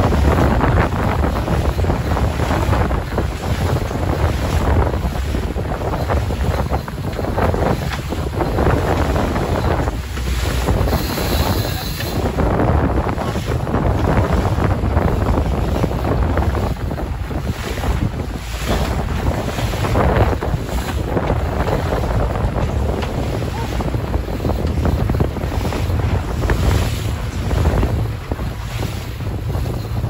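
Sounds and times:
outboard motor running: 0:00.0 - 0:30.0
water rushing past boat hull: 0:00.0 - 0:30.0
wind buffeting microphone: 0:00.0 - 0:30.0.

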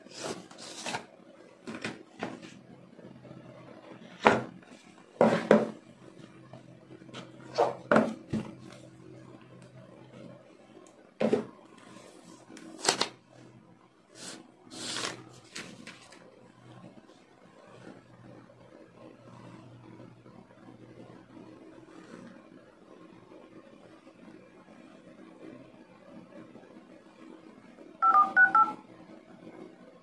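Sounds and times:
box handling knocks and scrapes: 0:01.7 - 0:02.6, 0:05.2 - 0:05.8, 0:11.2 - 0:11.5.

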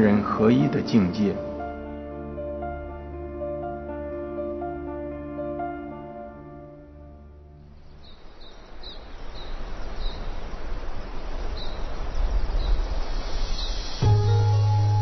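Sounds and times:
music with sustained tones: 0:00.0 - 0:07.9, 0:13.7 - 0:15.0
bird chirps: 0:07.8 - 0:10.5, 0:11.1 - 0:15.0
rushing wind: 0:07.8 - 0:15.0.

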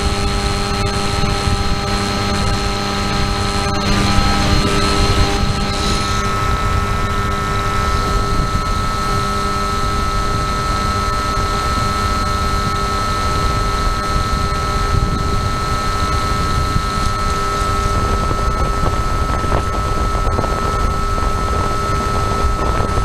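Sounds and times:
model plane motor whining: 0:00.0 - 0:23.0
wind rumble: 0:01.1 - 0:10.8.

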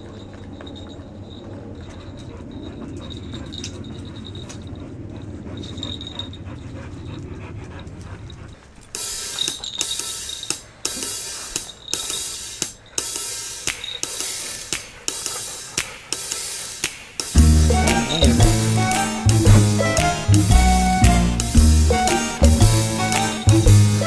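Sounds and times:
toy dog motor whirring: 0:00.0 - 0:24.0
music with drums and cymbals: 0:10.9 - 0:24.0.

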